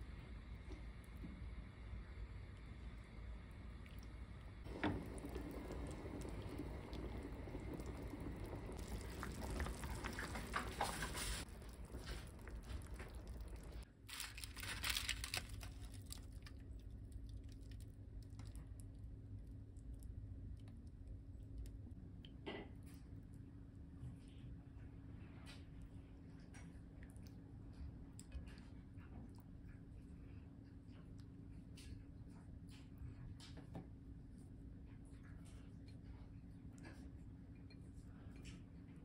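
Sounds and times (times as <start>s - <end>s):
steady low hum: 0.0s - 22.3s
aluminium foil crinkling: 8.8s - 18.6s.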